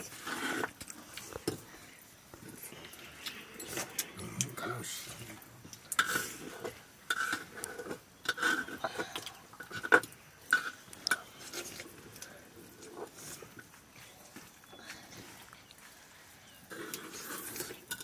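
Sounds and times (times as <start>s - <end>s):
metal plates clinking and scraping: 5.9s - 11.8s, 16.7s - 18.0s.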